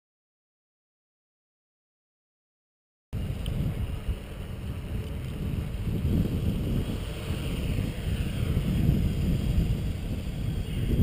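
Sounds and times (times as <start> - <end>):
drone propellers whirring: 3.2 - 11.0
wind buffeting microphone: 3.2 - 11.0.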